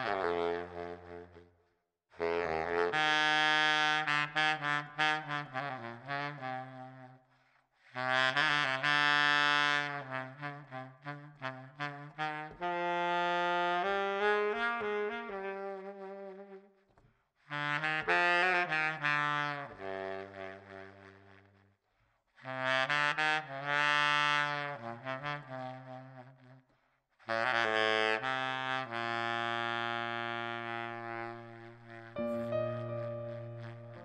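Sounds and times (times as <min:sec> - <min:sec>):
baritone saxophone melody: 0:00.0 - 0:01.5, 0:08.4 - 0:16.7, 0:27.5 - 0:34.0.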